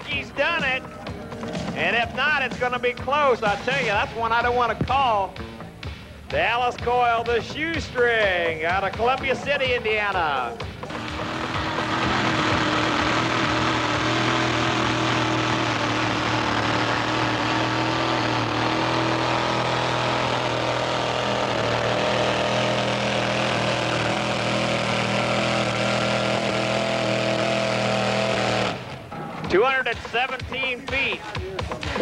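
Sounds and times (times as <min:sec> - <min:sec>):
pickup engine at high revs: 0:10.6 - 0:29.2.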